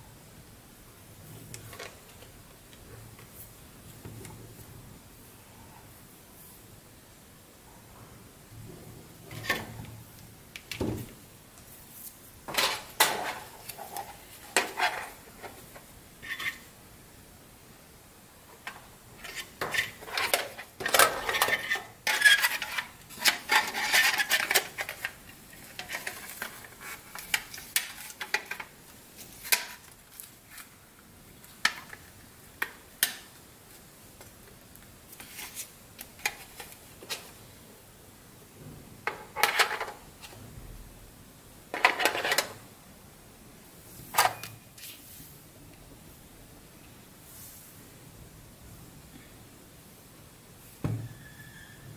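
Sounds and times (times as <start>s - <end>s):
plastic parts clicking and clattering: 12.5s - 16.6s, 18.6s - 30.6s, 39.0s - 40.0s, 41.7s - 42.6s.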